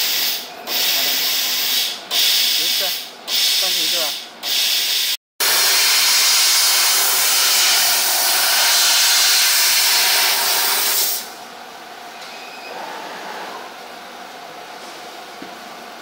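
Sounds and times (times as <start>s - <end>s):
hiss of gas jetting from nozzle: 0.0s - 11.3s
machine background hum: 0.0s - 16.0s.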